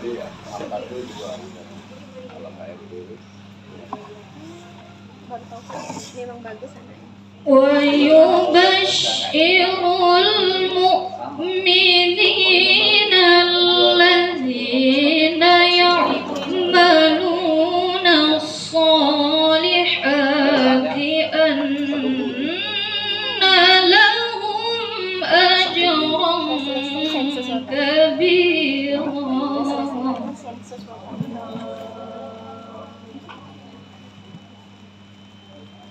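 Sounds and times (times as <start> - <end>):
steady low hum: 0.0 - 35.9
woman reciting melodically: 4.6 - 32.3.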